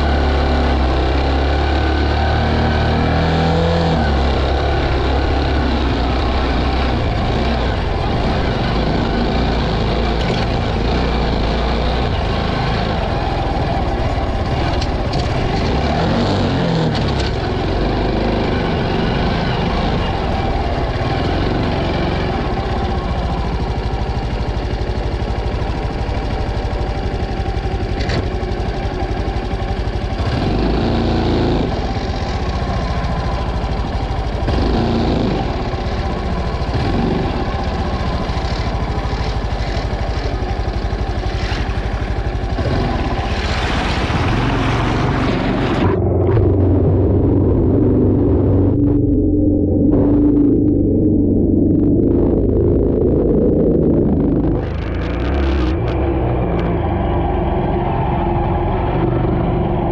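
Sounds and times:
motorcycle engine running: 0.0s - 59.9s
water splashing: 43.0s - 46.6s.

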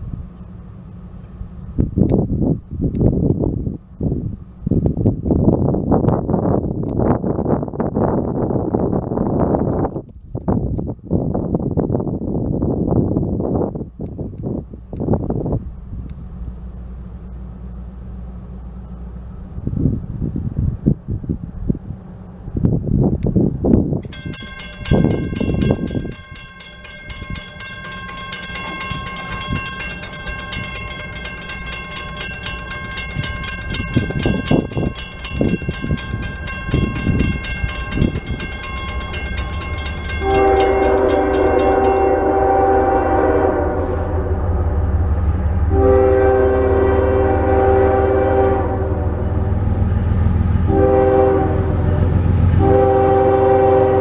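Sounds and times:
locomotive rumble: 0.0s - 54.0s
crossing bell ringing: 24.0s - 54.0s
locomotive horn blasts: 24.1s - 44.8s, 45.6s - 49.5s, 50.6s - 54.0s.

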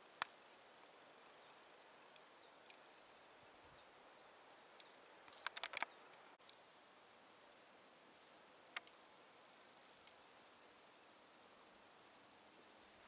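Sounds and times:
faint high bird chirps: 0.7s - 6.4s
sharp clicks: 4.8s - 6.2s.

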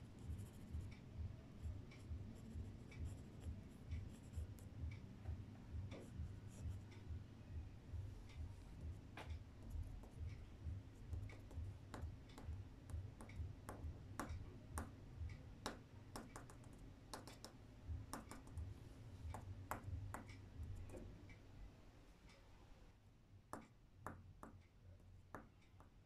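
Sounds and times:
pencil tapping on paper: 0.0s - 1.0s, 1.6s - 7.2s, 8.3s - 18.7s, 19.3s - 21.1s, 23.5s - 24.7s, 25.3s - 26.0s.

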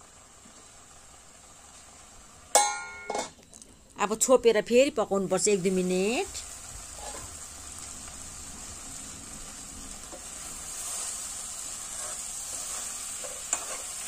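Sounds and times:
curry sizzling in a pan: 0.0s - 14.0s
spoon scraping and stirring: 11.8s - 14.0s.

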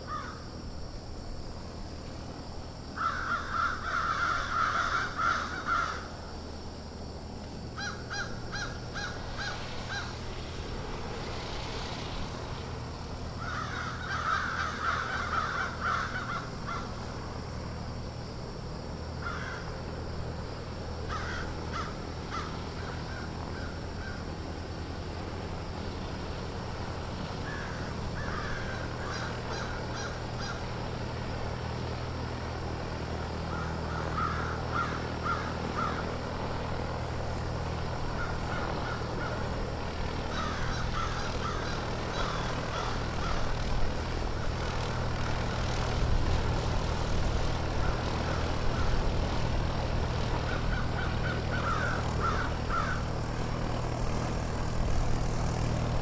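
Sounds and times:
crows cawing: 0.0s - 0.5s, 3.0s - 6.2s, 7.8s - 10.2s, 13.4s - 17.0s, 19.2s - 19.8s, 21.1s - 24.3s, 27.4s - 30.8s, 33.5s - 36.4s, 38.1s - 39.6s, 40.3s - 43.7s, 47.7s - 49.1s, 50.4s - 53.2s
steady low hum: 0.0s - 56.0s.

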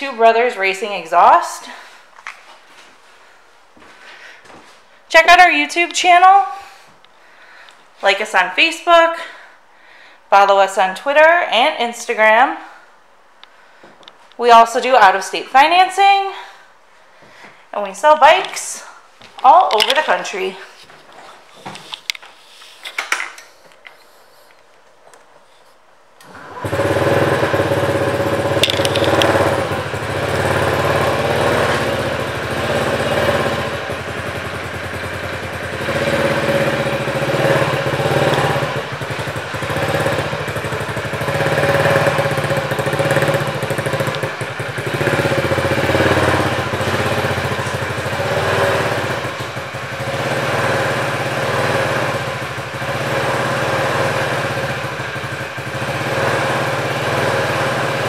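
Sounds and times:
scooter engine running: 26.2s - 58.0s.

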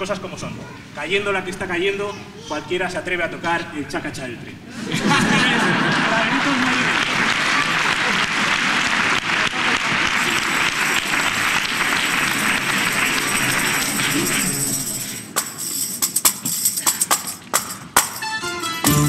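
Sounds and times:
audience applause: 5.2s - 15.4s
tambourine shakes and strikes: 10.2s - 19.0s.

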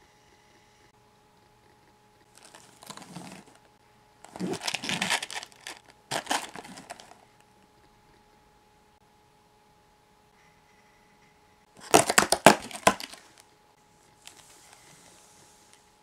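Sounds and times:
cardboard box rustling and scraping: 2.4s - 3.6s, 4.3s - 7.2s.

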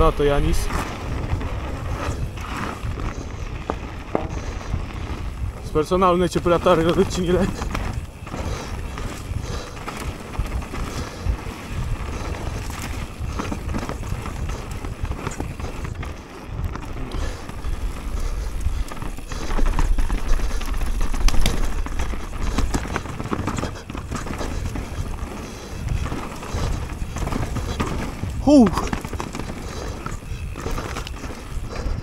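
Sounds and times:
bike rattling over ground: 0.0s - 32.0s
wind rumble on microphone: 0.0s - 32.0s.

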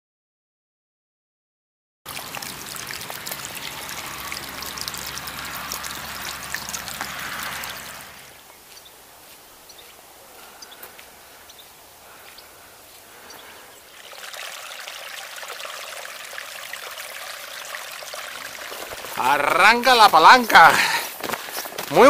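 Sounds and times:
running water: 2.1s - 9.4s, 12.0s - 22.0s.

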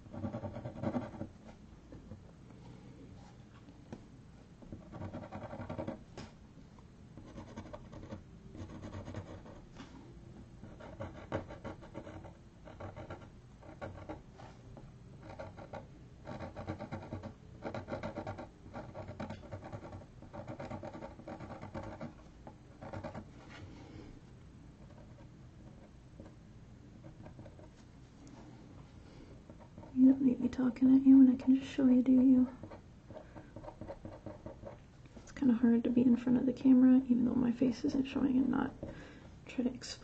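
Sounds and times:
marker scratching across paper: 0.1s - 1.3s, 10.7s - 14.2s, 15.2s - 22.2s.

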